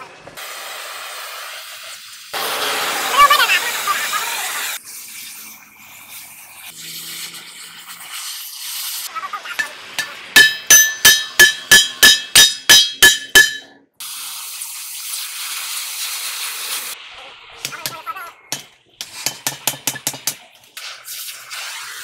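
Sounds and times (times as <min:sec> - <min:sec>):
cutting torch hissing: 0:00.4 - 0:09.1
hammer striking hot steel: 0:09.6 - 0:13.7, 0:17.6 - 0:20.5.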